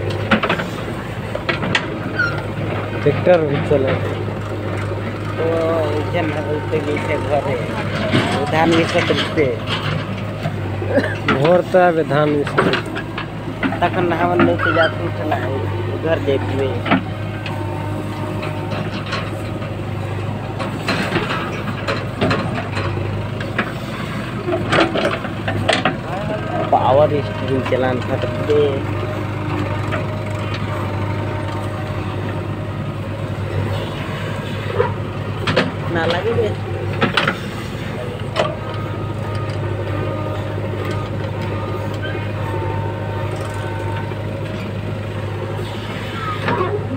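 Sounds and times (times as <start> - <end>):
backhoe digging soil: 0.0 - 46.9
diesel engine running under load: 0.0 - 46.9
tractor idling: 0.0 - 46.9.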